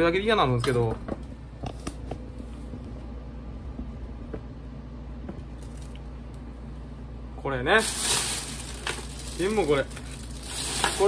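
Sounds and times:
steady low hum: 0.0s - 11.0s
plastic bag rustling: 7.7s - 11.0s.

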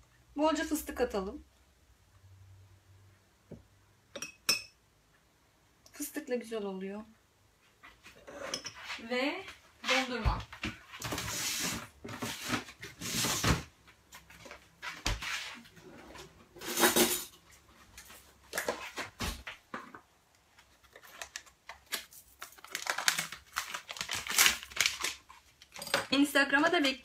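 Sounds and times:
dishes and utensils clattering: 8.3s - 8.9s, 16.6s - 17.4s.

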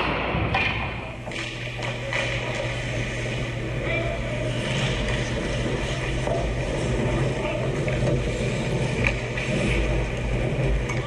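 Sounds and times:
skates and sticks on ice: 1.3s - 11.0s.

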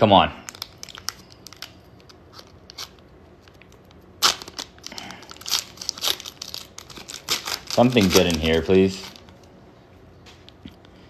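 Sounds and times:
foil wrapper tearing and crinkling: 0.4s - 3.6s, 4.2s - 9.4s.

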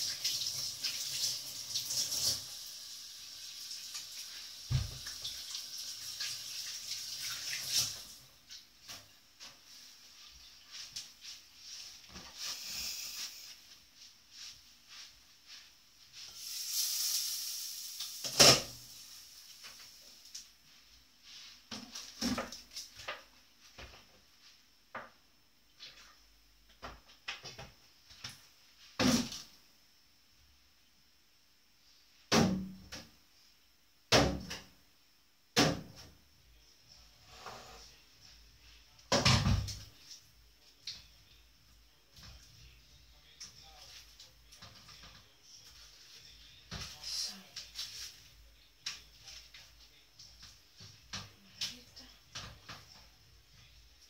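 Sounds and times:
hissing on stove: 12.3s - 13.7s, 16.2s - 20.4s.

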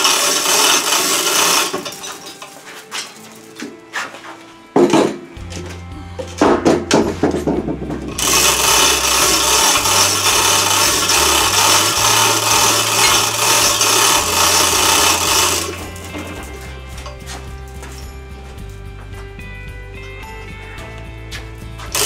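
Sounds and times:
hoist chain rattling: 0.0s - 2.5s, 8.1s - 17.3s
chain clanking: 0.0s - 2.6s, 8.0s - 19.4s.

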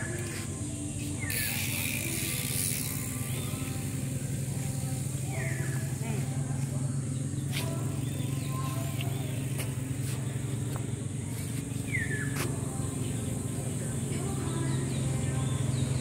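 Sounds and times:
low vehicle engine hum: 0.0s - 16.0s.

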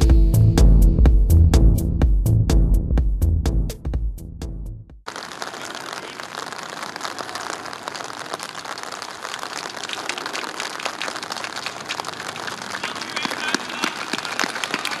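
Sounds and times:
rain pattering: 5.1s - 15.0s.

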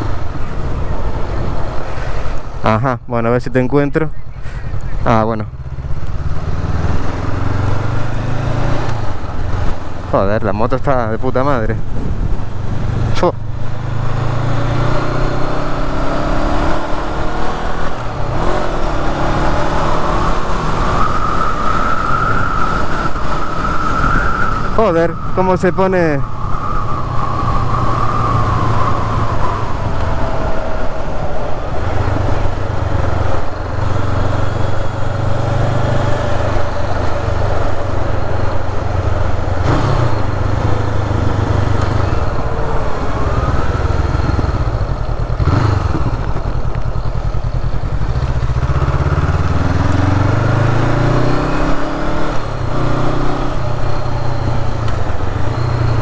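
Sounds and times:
motorcycle engine accelerating: 4.1s - 56.0s
wind noise: 5.9s - 48.8s.

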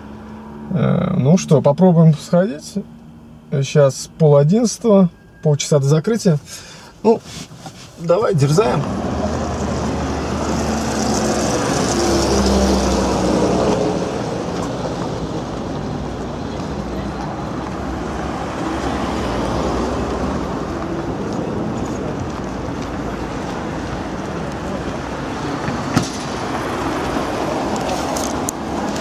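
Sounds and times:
road noise: 0.0s - 29.0s
vehicle engine hum: 0.0s - 29.0s.

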